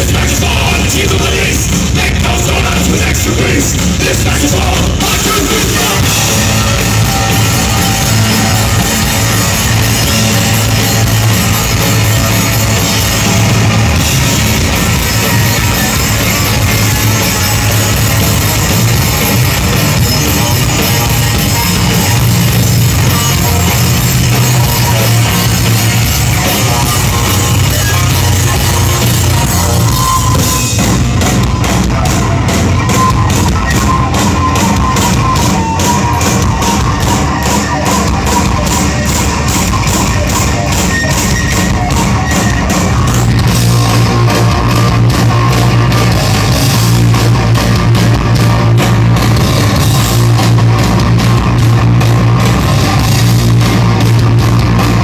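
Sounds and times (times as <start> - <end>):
distorted electric guitar: 0.0 - 55.0
drum kit: 0.0 - 55.0.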